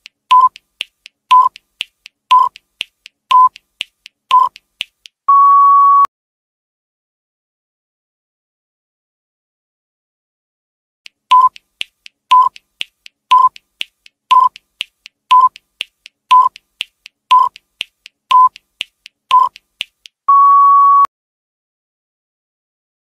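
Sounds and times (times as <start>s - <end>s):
sharp ticks: 0.0s - 5.2s, 11.1s - 20.2s
short electronic beeps: 1.3s - 1.6s, 2.3s - 2.6s, 3.3s - 3.6s, 4.3s - 4.6s, 5.3s - 6.1s, 11.3s - 11.6s, 12.3s - 12.6s, 13.3s - 13.6s, 14.3s - 14.6s, 15.3s - 15.6s, 16.3s - 16.6s, 17.3s - 17.6s, 18.3s - 18.6s, 19.3s - 19.6s, 20.3s - 21.1s
longer higher beep: 5.3s - 6.1s, 20.3s - 21.1s.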